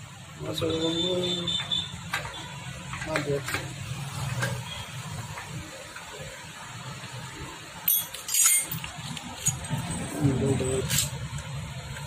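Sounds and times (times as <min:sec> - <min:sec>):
metal tools clinking: 0:07.8 - 0:11.2.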